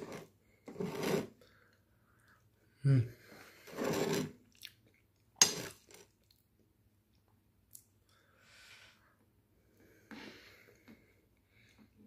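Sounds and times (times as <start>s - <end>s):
person eating: 3.7s - 6.4s
soft breath: 8.1s - 12.0s.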